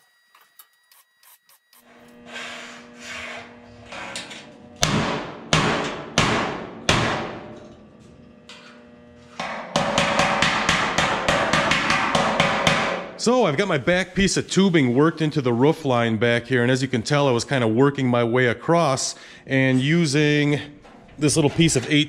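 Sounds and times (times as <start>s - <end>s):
hammer ringing on sheet steel: 9.3s - 13.2s.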